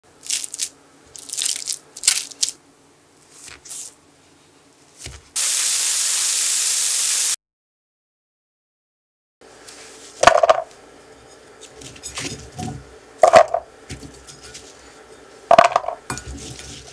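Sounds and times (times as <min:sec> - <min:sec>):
loud steady hiss: 0:05.4 - 0:07.4.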